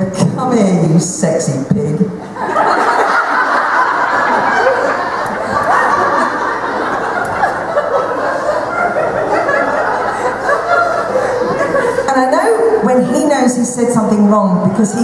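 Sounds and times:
audience laughing: 2.2 - 12.7.

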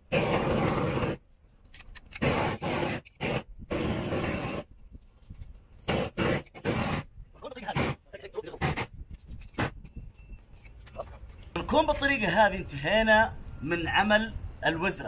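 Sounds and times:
propane torch rushing and scraping: 0.0 - 10.7.

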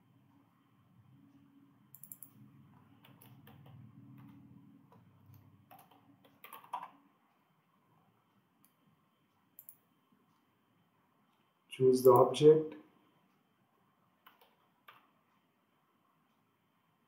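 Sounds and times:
faint low hum: 0.0 - 17.0
typing on a keyboard: 2.0 - 2.4, 3.0 - 4.4, 5.7 - 7.0, 14.2 - 15.1.

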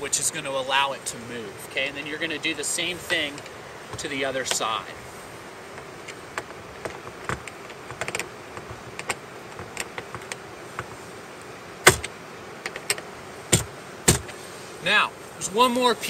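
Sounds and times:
palm striking screwdriver handle: 11.9 - 13.0, 13.6 - 14.3.

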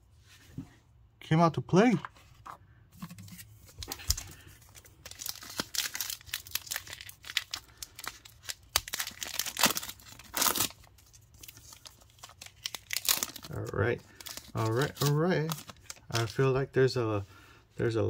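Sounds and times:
card pack wrapper tearing and crinkling: 3.3 - 16.5.

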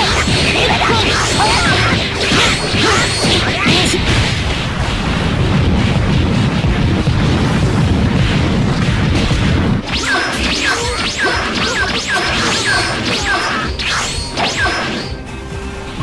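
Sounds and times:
whooshes and punch hits: 1.3 - 11.6
steady low rumble: 3.5 - 9.9.

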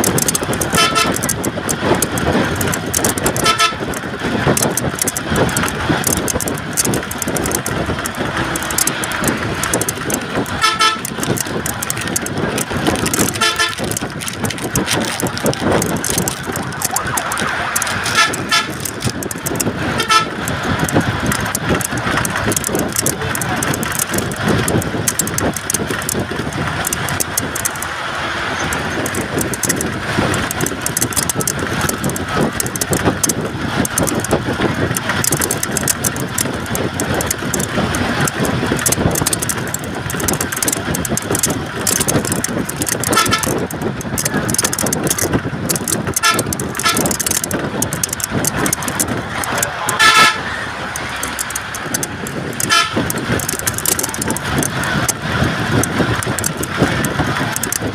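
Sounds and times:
road and engine noise inside vehicle: 0.0 - 57.9
vehicle horn toots: 0.7 - 1.2, 3.4 - 3.8, 10.6 - 11.1, 13.3 - 13.8, 18.0 - 18.8, 19.9 - 20.4, 43.1 - 43.6, 46.2 - 47.1, 50.0 - 50.6, 52.6 - 53.1.

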